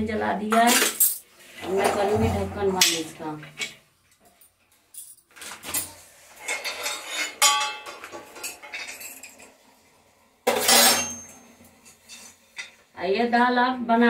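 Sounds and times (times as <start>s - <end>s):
steel utensils clattering: 5.0s - 9.5s, 10.5s - 12.8s.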